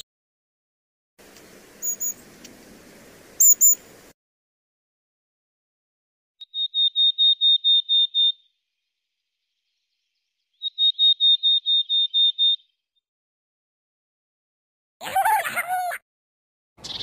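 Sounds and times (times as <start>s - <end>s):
eagle calling high piping notes: 1.8s - 2.6s, 3.2s - 4.0s.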